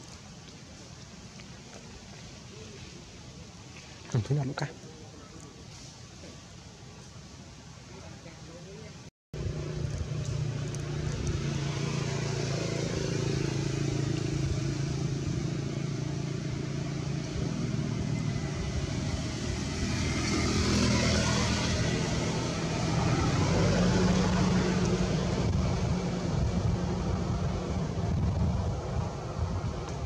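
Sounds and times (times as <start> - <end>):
vehicle engine running: 9.4 - 20.0
vehicle passing by: 9.4 - 30.0.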